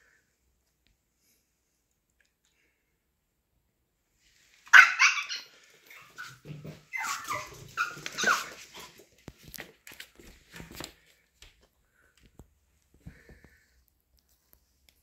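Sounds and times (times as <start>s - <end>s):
small dog barking and yelping: 4.7s - 9.0s
dog whining: 4.8s - 8.9s.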